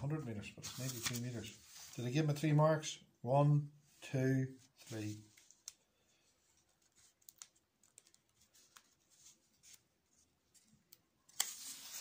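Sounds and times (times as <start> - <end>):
paper rustling: 0.6 - 2.4, 4.6 - 12.0.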